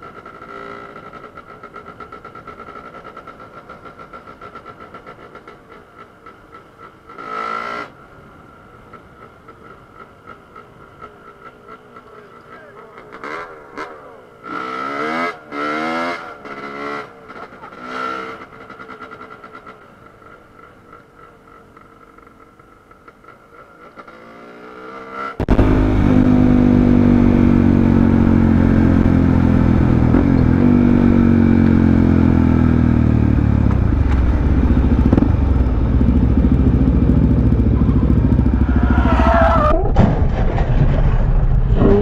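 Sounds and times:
motorcycle engine running: 0:25.4 - 0:39.9
wavering high squeal: 0:37.9 - 0:39.9.

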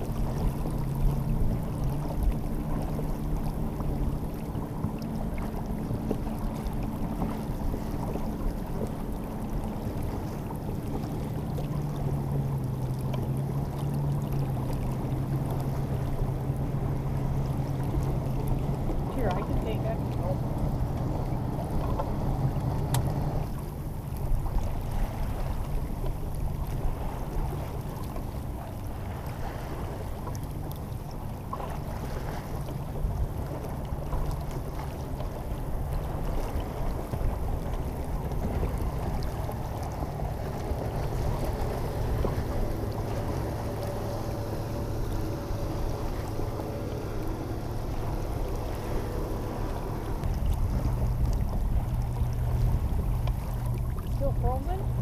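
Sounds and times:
water washing along hull: 0:00.0 - 0:55.0
wind buffeting microphone: 0:14.2 - 0:55.0.

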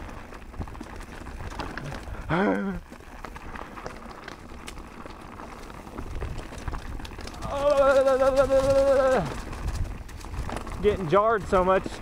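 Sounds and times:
bike clicking and rattling: 0:00.0 - 0:12.0
tyres crunching over loose rock: 0:00.0 - 0:12.0
person shouting: 0:07.4 - 0:09.3.

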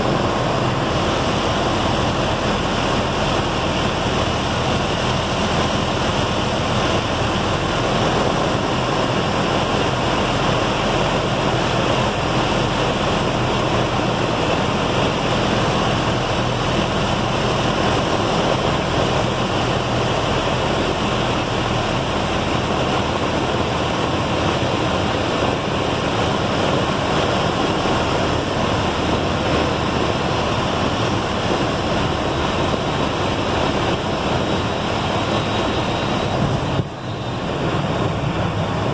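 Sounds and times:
aircraft engine idling low: 0:00.0 - 0:38.9
rush of air over airframe: 0:00.0 - 0:38.9.

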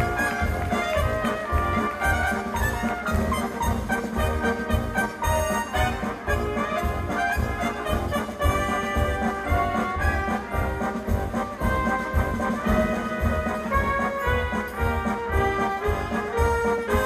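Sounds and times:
brass music over steady beat: 0:00.0 - 0:17.0.

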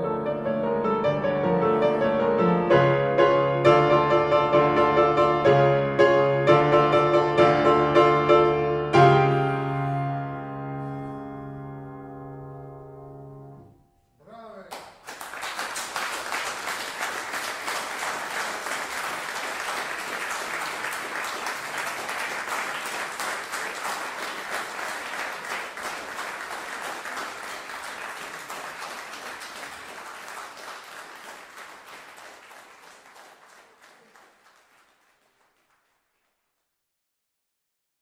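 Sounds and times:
audience applauding: 0:14.6 - 0:36.7.

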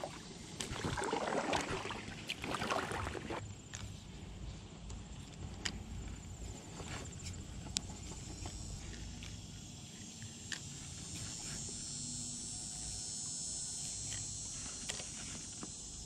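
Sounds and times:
insects trilling: 0:05.0 - 0:16.0.

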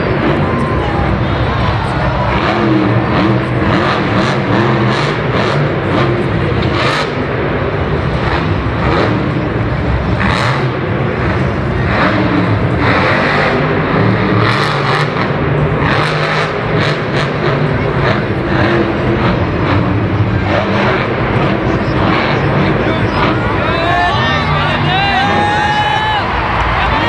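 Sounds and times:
truck engine revving loudly: 0:00.0 - 0:27.0.

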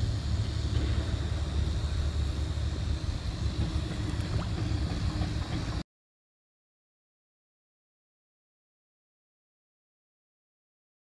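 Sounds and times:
wind rumbling on microphone: 0:00.0 - 0:05.8.

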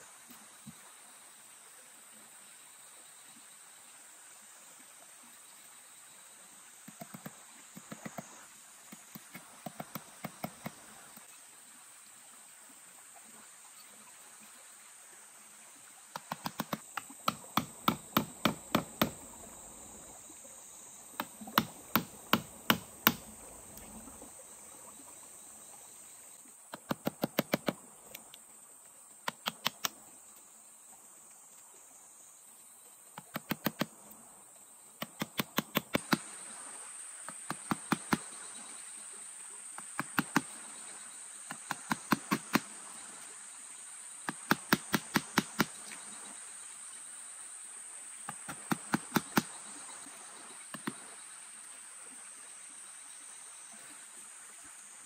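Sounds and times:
forest insects droning: 0:00.0 - 0:55.0
rapid sharp knocks: 0:16.2 - 0:19.2, 0:21.2 - 0:23.3, 0:44.3 - 0:45.8.

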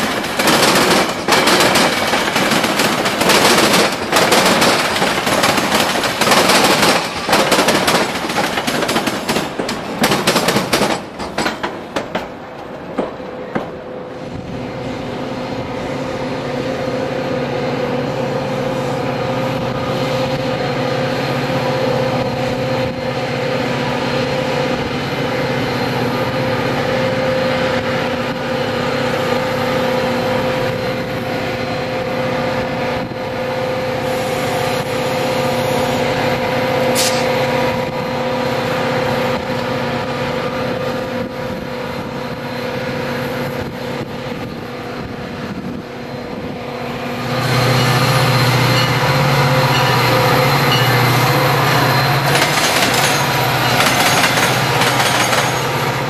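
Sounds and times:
diesel locomotive engine running: 0:00.0 - 0:56.0
brief sharp sound: 0:36.9 - 0:37.4.

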